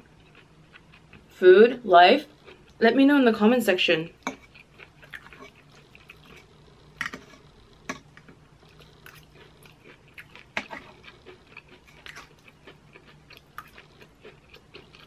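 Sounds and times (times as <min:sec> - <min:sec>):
chewing and crunching: 0:00.0 - 0:01.4, 0:02.2 - 0:02.8, 0:04.2 - 0:15.0.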